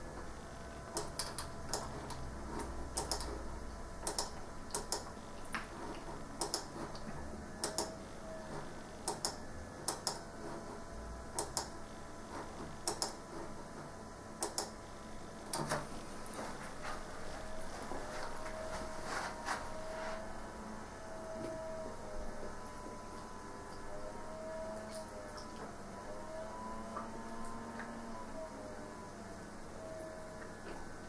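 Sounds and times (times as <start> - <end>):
sharp light clicks: 3.0 - 3.3, 4.0 - 5.1, 7.6 - 7.9, 12.9 - 13.2, 14.4 - 14.8.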